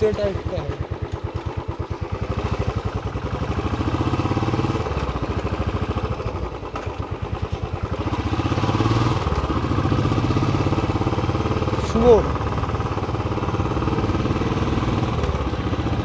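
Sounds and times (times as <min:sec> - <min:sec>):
motorcycle exhaust thumping: 0:00.0 - 0:09.8.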